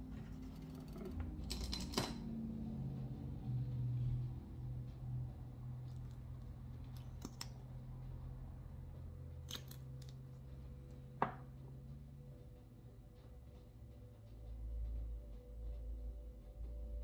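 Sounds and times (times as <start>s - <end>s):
low steady hum: 0.0s - 17.0s
sharp clicks and snips: 5.9s - 7.7s.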